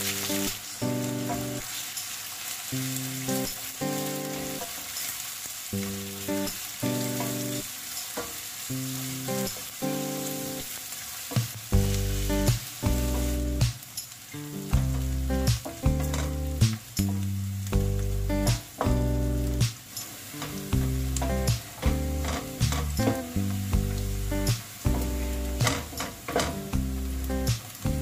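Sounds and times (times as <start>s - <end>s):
onions sizzling in oil: 0.0s - 28.0s
background music with bass: 11.8s - 13.8s, 14.6s - 19.8s, 20.5s - 28.0s.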